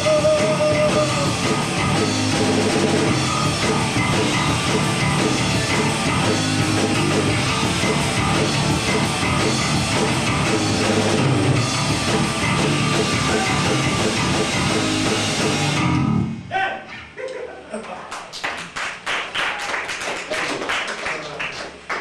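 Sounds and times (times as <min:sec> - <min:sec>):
live rock band playing: 0:00.0 - 0:16.4.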